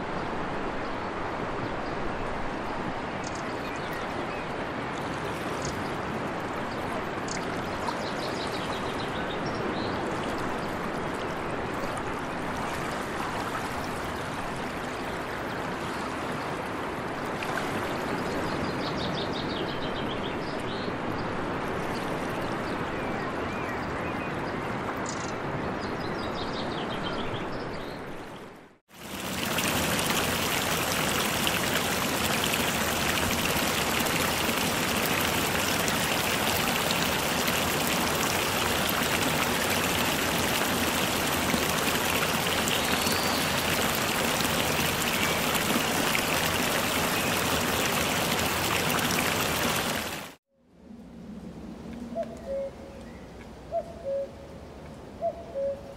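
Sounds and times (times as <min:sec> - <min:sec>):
running water rushing: 0:00.0 - 0:19.8, 0:28.9 - 0:50.4
dense hiss of water: 0:28.9 - 0:50.4.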